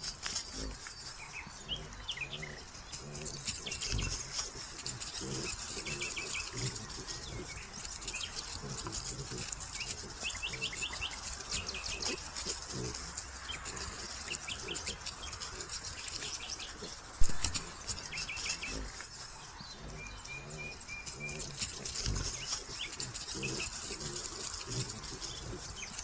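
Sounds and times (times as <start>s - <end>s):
rooting through dry leaves: 0.0s - 26.0s
small birds chirping: 0.0s - 26.0s
wild boars grunting: 0.0s - 26.0s.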